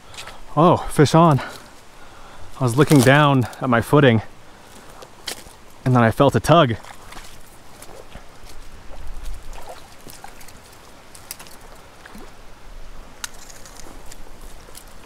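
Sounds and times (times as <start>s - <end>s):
fish splashing at water surface: 9.2s - 12.4s.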